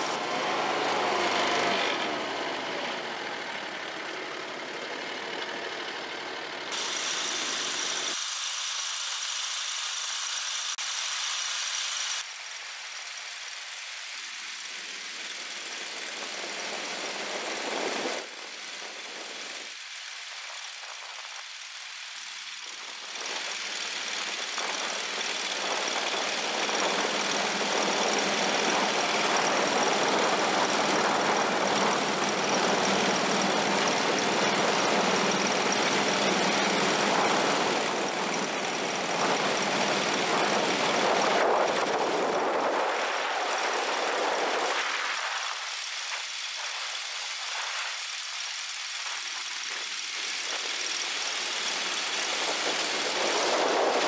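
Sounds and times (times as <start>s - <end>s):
boat motor running: 0.0s - 8.2s, 23.2s - 44.6s.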